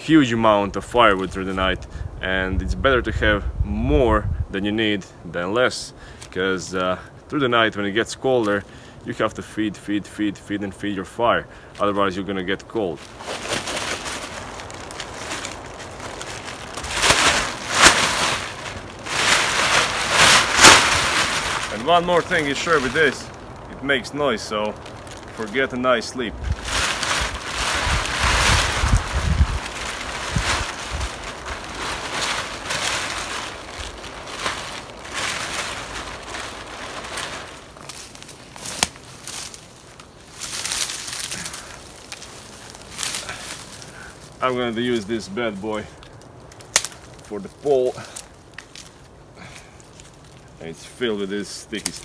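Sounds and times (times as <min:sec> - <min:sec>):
plastic bag rustling: 0:11.7 - 0:52.0
plastic tarp crinkling: 0:11.8 - 0:52.0
plastic bag flapping: 0:12.9 - 0:44.1.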